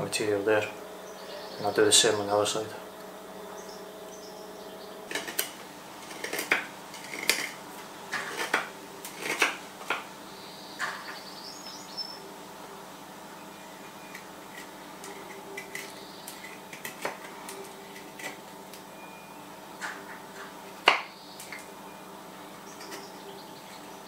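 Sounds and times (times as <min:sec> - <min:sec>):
knife cutting wood: 0:05.1 - 0:07.6, 0:08.2 - 0:10.0.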